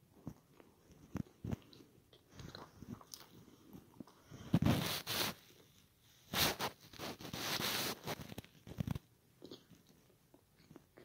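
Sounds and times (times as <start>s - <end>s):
chewing pizza crust: 0.0s - 4.4s, 6.8s - 11.0s.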